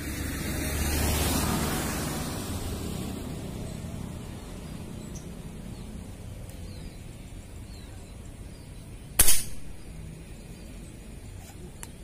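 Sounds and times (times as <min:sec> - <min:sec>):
faint outdoor background: 0:00.0 - 0:12.0
air rifle shot: 0:09.2 - 0:09.8.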